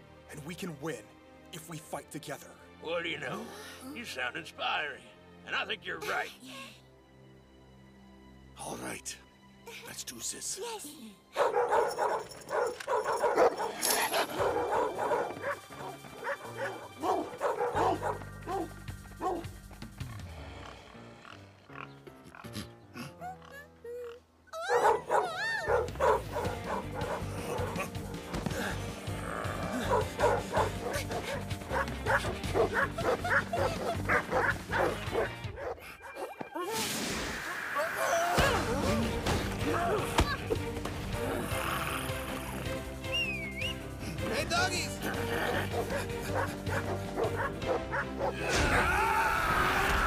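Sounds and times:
background music: 0.0s - 50.0s
dogs barking: 11.4s - 19.6s, 24.6s - 36.6s, 45.0s - 48.7s.

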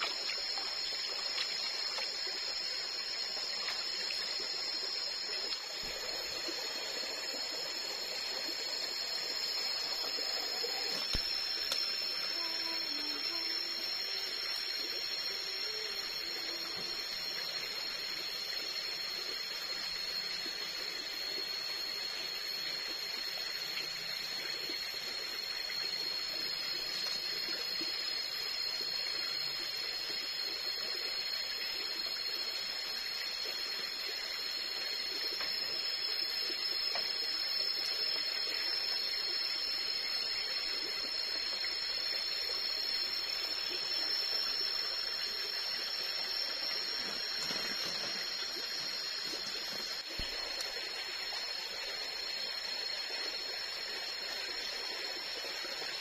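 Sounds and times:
high-pitched insect drone: 0.0s - 56.0s.

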